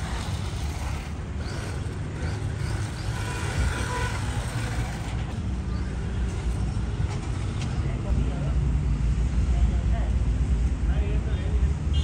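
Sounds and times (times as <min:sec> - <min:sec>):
toy car electric motor whine: 0:00.0 - 0:05.5
low rumble of street noise: 0:00.0 - 0:12.0.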